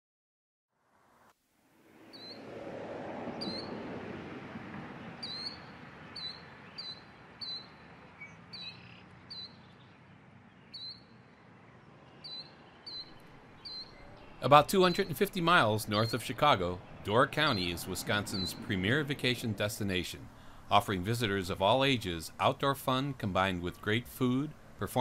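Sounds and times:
soft rushing background: 1.0 - 25.0
small bird chirping: 2.1 - 2.4, 3.4 - 3.7, 5.2 - 18.6.

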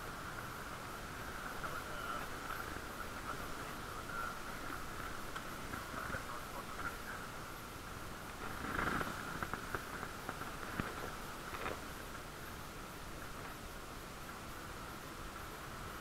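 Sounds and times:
bicycle tyres and drivetrain hum: 0.0 - 16.0
small rattles: 8.2 - 12.5.

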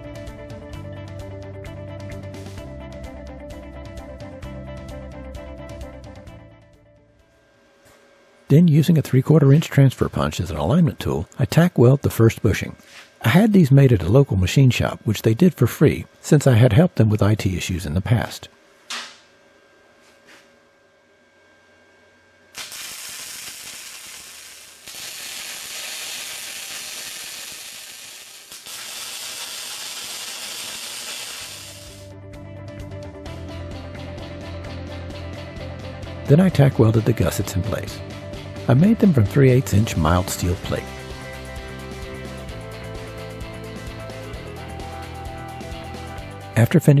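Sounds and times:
background music with held chords: 0.0 - 16.2, 31.8 - 47.0
welding arc crackling and hissing: 8.5 - 17.6, 22.5 - 32.1, 38.8 - 41.5
welder crackling: 22.5 - 32.1.

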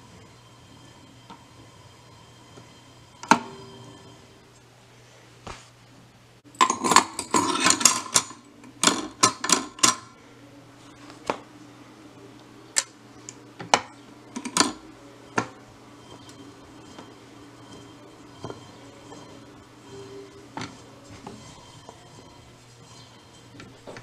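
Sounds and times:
low steady hum: 0.0 - 24.0
record changer clicking: 2.6 - 3.8, 12.4 - 24.0.

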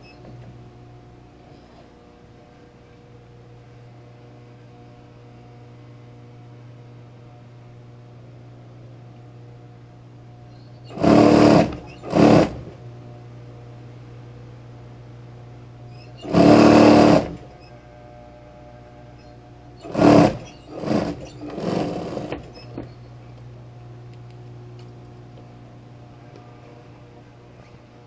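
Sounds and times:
steady low hum: 0.0 - 28.0
sewing machine stitching: 10.9 - 12.8, 16.2 - 17.5, 19.8 - 22.8.

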